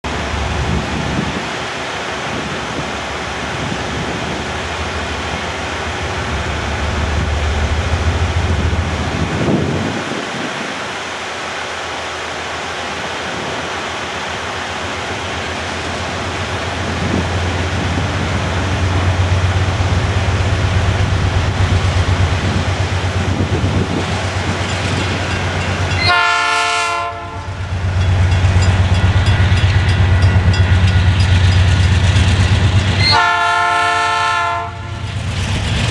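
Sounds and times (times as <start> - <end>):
diesel locomotive engines rumbling: 0.0 - 35.9
train clattering on rails: 0.0 - 35.9
train horn blast: 25.9 - 27.6, 33.0 - 35.0.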